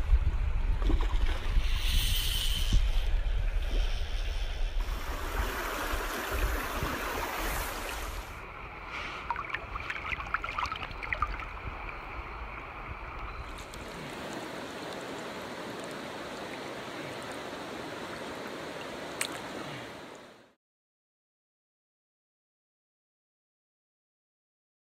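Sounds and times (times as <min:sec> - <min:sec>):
wind rumbling on microphone: 0:00.0 - 0:20.2
rushing stream water: 0:04.8 - 0:20.6
small water splashes and clicks: 0:09.2 - 0:11.7, 0:13.1 - 0:20.3.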